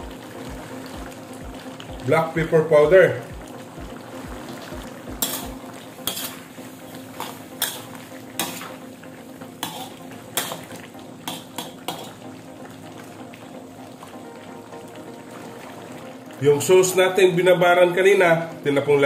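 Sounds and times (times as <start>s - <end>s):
chicken frying in sauce: 0.0s - 19.0s
ladle scraping steel wok: 5.2s - 8.7s, 9.6s - 10.7s, 11.3s - 12.2s.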